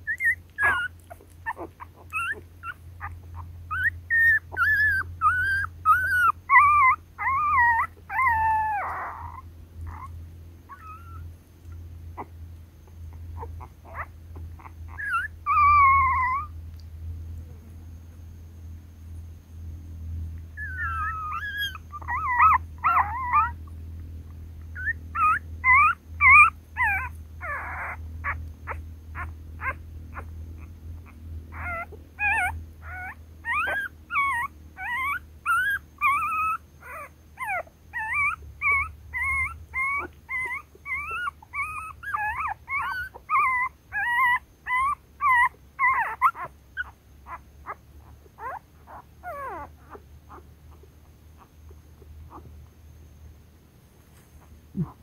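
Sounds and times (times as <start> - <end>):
puppies whimpering and squealing: 0.0 - 12.3, 13.0 - 16.6, 20.5 - 52.7, 54.4 - 55.0.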